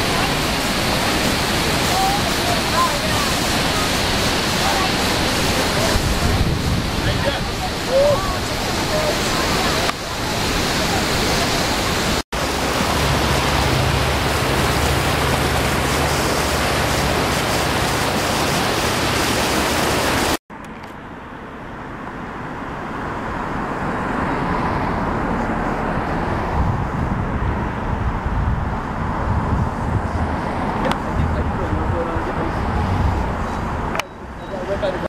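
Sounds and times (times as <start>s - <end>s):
river running over rapids: 0.0s - 20.4s
waterfall rushing: 0.0s - 20.4s.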